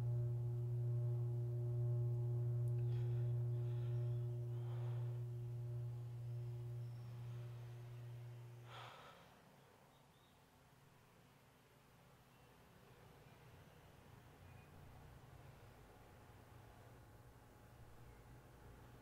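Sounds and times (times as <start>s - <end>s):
low film score drone: 0.0s - 9.1s.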